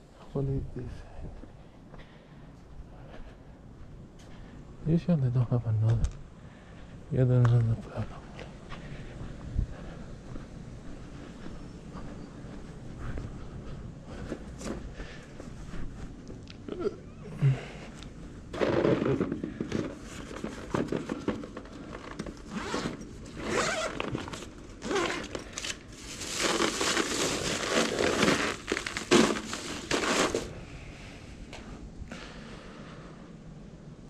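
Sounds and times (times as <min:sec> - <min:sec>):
rustling and crinkling handling noise: 0:17.5 - 0:31.8.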